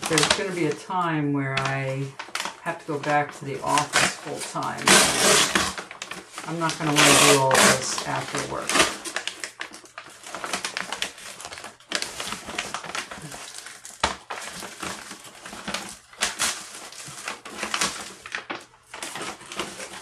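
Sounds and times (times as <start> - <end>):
paper bag crinkling: 0.0 - 20.0
sharp paper crack: 0.0 - 20.0.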